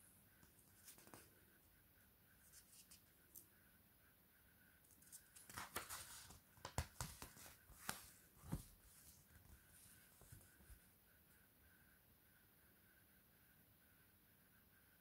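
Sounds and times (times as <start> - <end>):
paper pages rustling: 0.5 - 1.3, 4.9 - 10.8
book pages flicking: 5.1 - 8.6.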